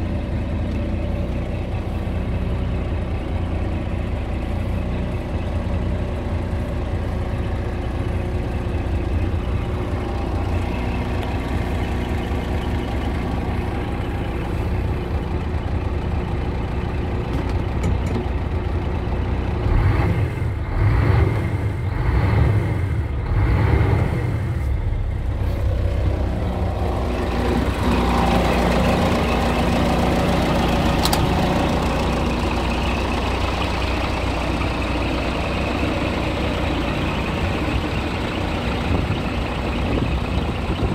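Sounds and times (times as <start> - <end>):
diesel truck engine idling: 0.0 - 40.9
engine revving in throttle blips: 19.5 - 40.9.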